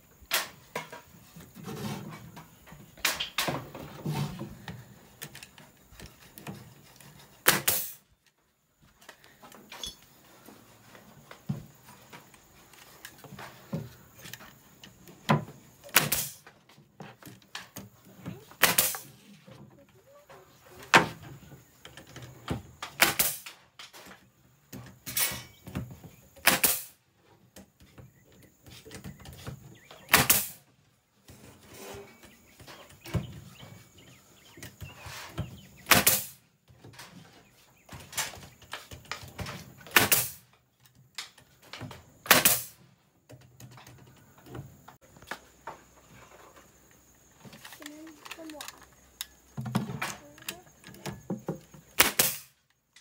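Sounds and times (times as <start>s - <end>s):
nail gun firing into plywood: 7.4s - 8.0s, 15.8s - 16.5s, 18.6s - 19.2s, 22.9s - 23.6s, 26.4s - 27.0s, 30.1s - 30.6s, 35.8s - 36.4s, 39.8s - 40.4s, 42.2s - 42.8s, 52.0s - 52.6s.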